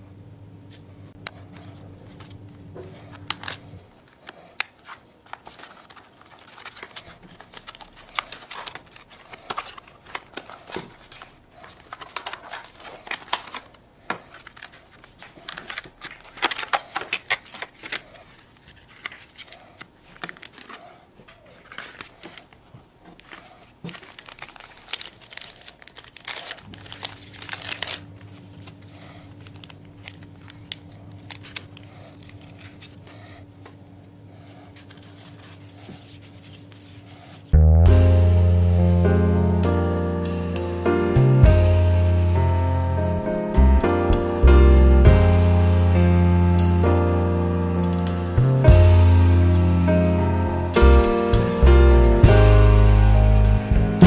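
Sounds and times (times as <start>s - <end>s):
steady low hum: 0.0s - 4.5s
sachets tearing open: 3.0s - 22.6s, 23.2s - 33.2s
packaging crinkling: 3.0s - 33.4s.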